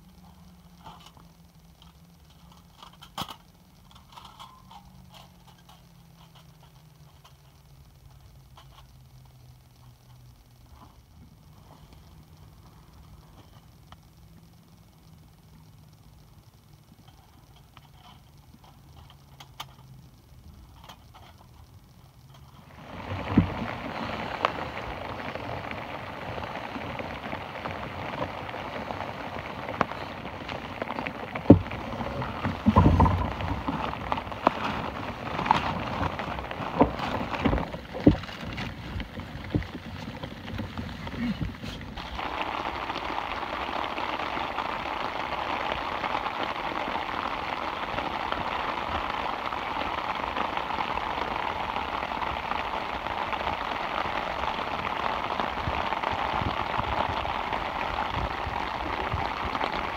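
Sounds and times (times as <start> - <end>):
crinkly rustling of sleeping pad: 22.5 - 59.9.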